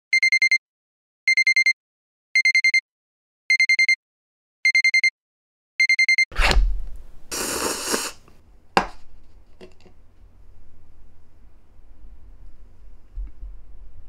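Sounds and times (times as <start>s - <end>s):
electronic timer alarm beeping: 0.1s - 0.6s, 1.3s - 1.8s, 2.4s - 2.8s, 3.5s - 4.0s, 4.6s - 5.1s, 5.8s - 6.3s
thud: 6.4s - 7.0s.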